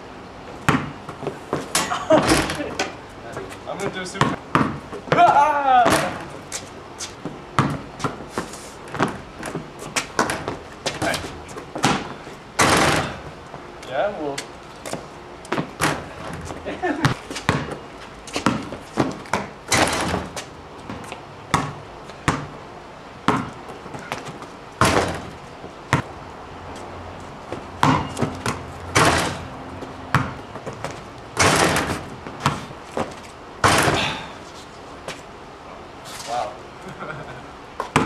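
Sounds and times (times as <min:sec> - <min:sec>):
ball slamming rim and backboard: 0:00.6 - 0:02.6, 0:04.2 - 0:06.4, 0:10.2 - 0:13.3, 0:15.6 - 0:16.4, 0:17.0 - 0:17.8, 0:18.4 - 0:22.5, 0:23.3 - 0:23.5, 0:24.1 - 0:26.1, 0:27.8 - 0:29.5, 0:30.1 - 0:34.3
basketball bouncing on concrete: 0:00.6 - 0:06.4, 0:07.2 - 0:13.2, 0:14.9 - 0:22.6, 0:23.2 - 0:26.1, 0:27.5 - 0:34.2, 0:37.8 - 0:38.0.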